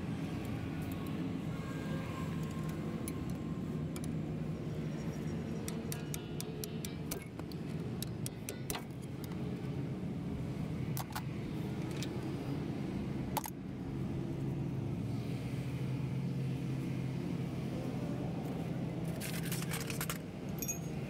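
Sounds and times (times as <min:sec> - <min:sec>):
low engine hum: 0:00.0 - 0:21.0
hand tools clinking on metal: 0:19.2 - 0:21.0.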